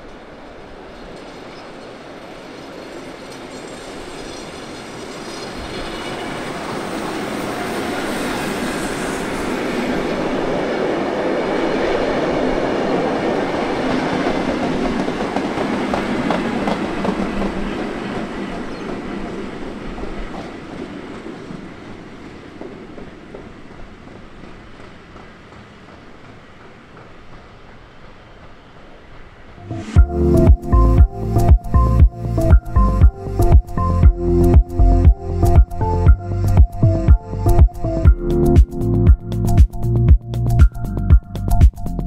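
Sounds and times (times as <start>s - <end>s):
clickety-clack over rail joints: 0.0s - 11.0s, 11.7s - 29.6s
train wheels rumbling on rails: 0.0s - 37.9s.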